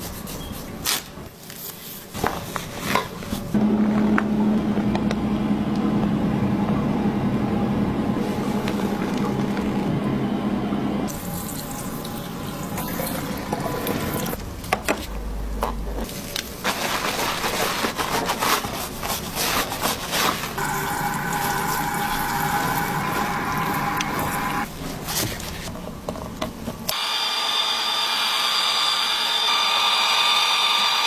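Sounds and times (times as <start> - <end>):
shower water running over hair: 11.1 - 14.4, 20.5 - 24.7.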